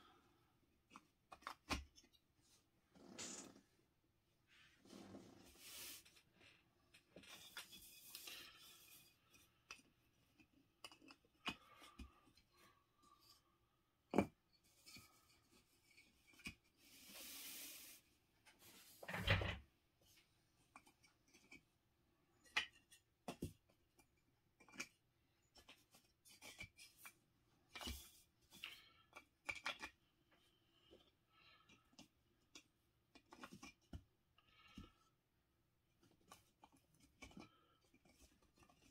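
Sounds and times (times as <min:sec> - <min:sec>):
tiles rubbing on felt mat: 0:04.5 - 0:06.1
plastic tiles clicking and knocking: 0:09.3 - 0:12.4.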